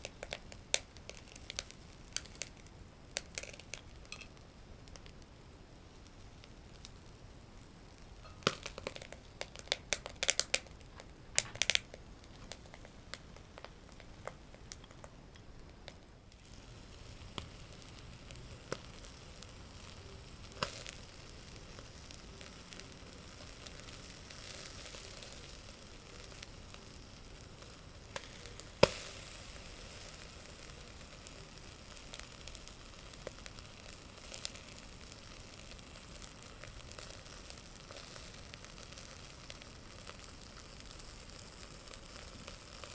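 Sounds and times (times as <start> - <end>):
fish sizzling on grill: 0.0 - 42.9.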